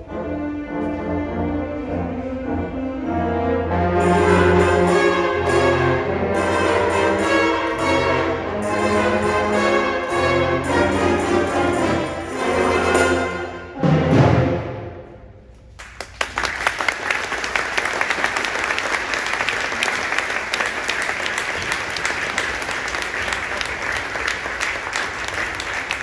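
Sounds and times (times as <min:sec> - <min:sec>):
concert band playing a tango: 0:00.0 - 0:14.8
audience applause: 0:15.8 - 0:26.0.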